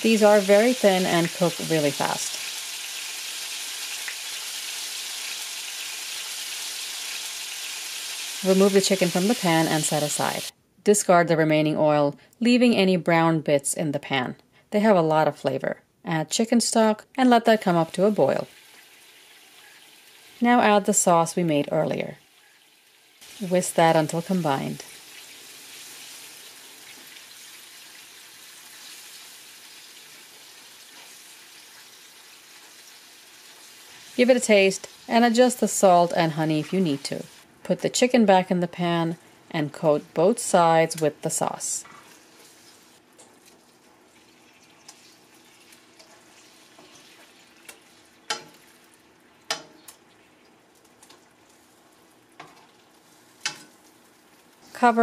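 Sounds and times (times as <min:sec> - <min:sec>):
sauce bubbling in a frying pan: 0:00.0 - 0:08.4, 0:18.5 - 0:20.4, 0:22.2 - 0:23.4, 0:24.4 - 0:34.2, 0:42.0 - 0:54.6
tongs clicking against pan: 0:47.7 - 0:48.6, 0:49.5 - 0:50.0, 0:53.4 - 0:53.8.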